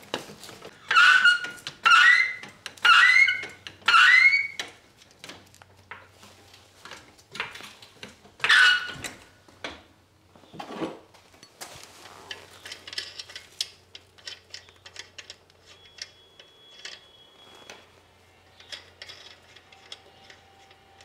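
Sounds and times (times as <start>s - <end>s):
floor jack squeaking: 0.7s - 4.7s, 8.4s - 9.2s.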